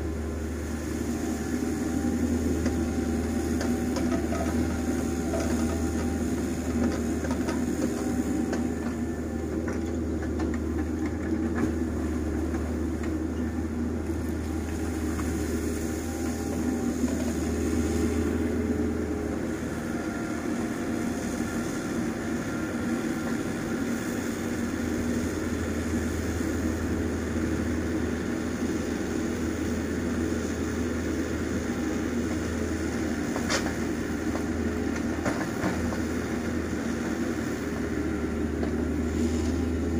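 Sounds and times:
diesel engine droning: 0.0s - 39.9s.

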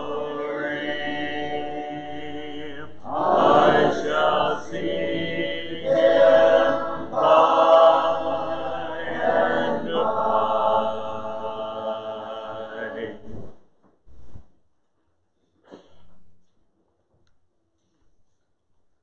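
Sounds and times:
congregation singing a hymn: 0.0s - 13.5s.

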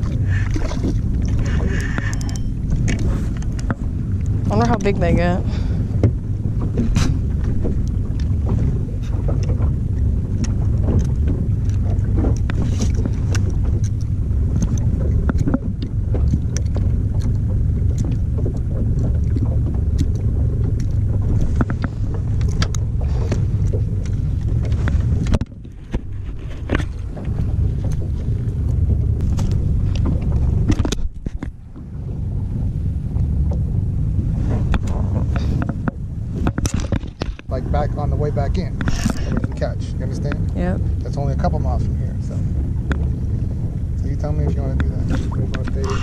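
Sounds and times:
wind buffeting microphone: 0.0s - 46.0s
clicks and knocks from fishing gear: 6.0s - 28.5s, 29.2s - 31.6s, 34.5s - 37.5s.

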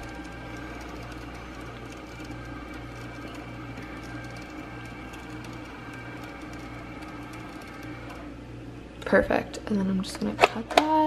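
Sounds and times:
label maker printing: 0.0s - 8.5s.

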